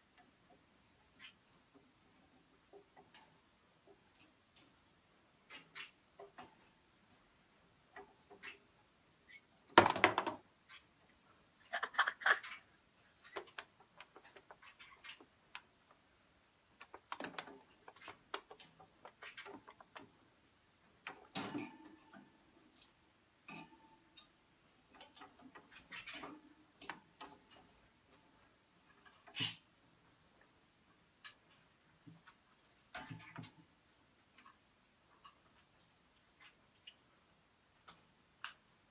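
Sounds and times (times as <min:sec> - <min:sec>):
wooden ladder clicks and knocks: 0:09.7 - 0:10.4.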